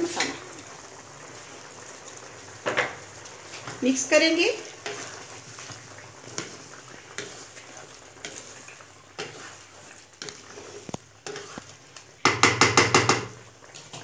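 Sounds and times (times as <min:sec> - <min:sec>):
food sizzling in a pan: 0:00.0 - 0:14.0
spoon scraping and tapping pan: 0:02.6 - 0:03.0, 0:04.8 - 0:14.0.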